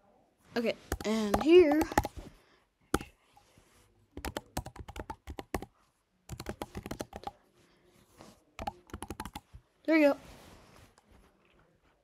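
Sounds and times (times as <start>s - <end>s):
typing on computer keyboard: 0.9s - 2.2s, 4.2s - 5.7s, 6.3s - 7.4s, 8.6s - 9.5s.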